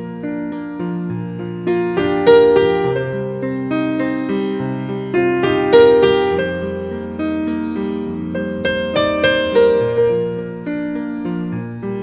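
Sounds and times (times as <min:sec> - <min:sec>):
piano melody over held chords: 0:00.0 - 0:12.0.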